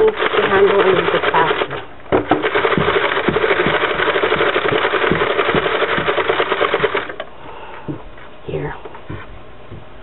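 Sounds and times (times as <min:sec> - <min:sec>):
knitting machine needles clattering: 0:00.0 - 0:07.2.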